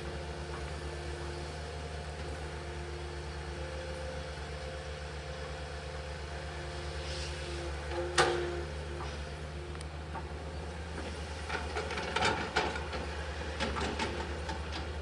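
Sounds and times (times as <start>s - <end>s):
faint hydraulic whine: 0.0s - 11.8s
excavator diesel engine throbbing: 0.0s - 15.0s.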